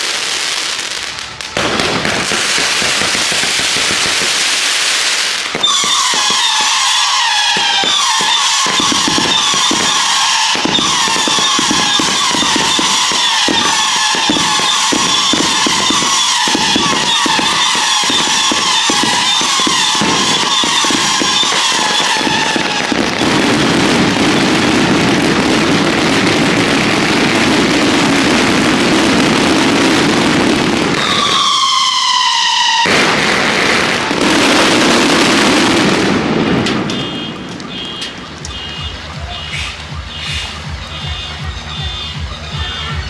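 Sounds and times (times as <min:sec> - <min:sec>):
fireworks crackling bangs: 0:00.0 - 0:43.0
whistling fireworks: 0:00.0 - 0:43.0
steady rushing roar: 0:09.0 - 0:40.8.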